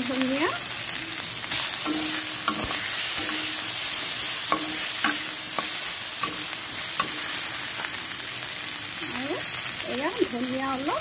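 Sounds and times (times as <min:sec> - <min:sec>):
food sizzling in oil: 0:00.0 - 0:11.0
metal spatula scraping a wok: 0:01.4 - 0:08.1.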